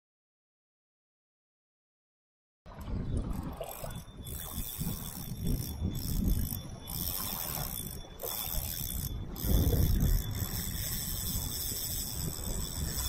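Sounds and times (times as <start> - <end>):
wind buffeting microphone: 2.7 - 13.0
spinning reel whirring: 3.0 - 13.0.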